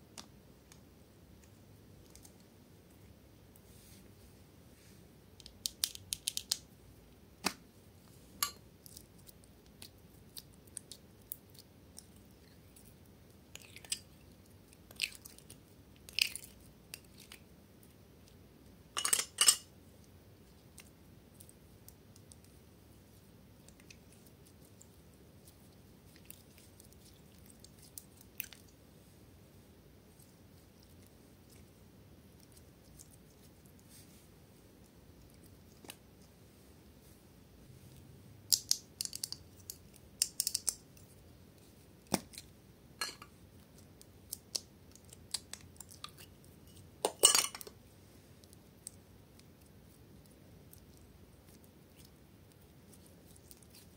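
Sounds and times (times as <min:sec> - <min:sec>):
sticky slime clicks and crackles: 0:05.4 - 0:06.6.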